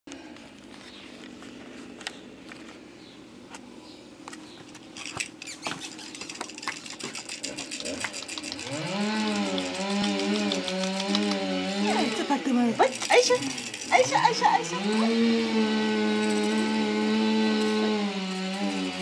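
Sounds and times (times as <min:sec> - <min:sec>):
plush toy rattling: 0:04.9 - 0:12.1, 0:12.8 - 0:15.0.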